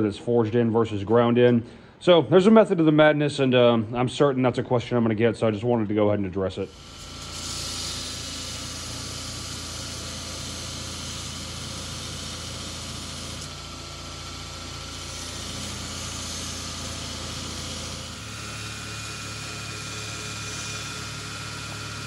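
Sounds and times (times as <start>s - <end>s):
abrasive belt grinding steel: 6.6s - 22.0s
grinder motor hum: 6.6s - 22.0s.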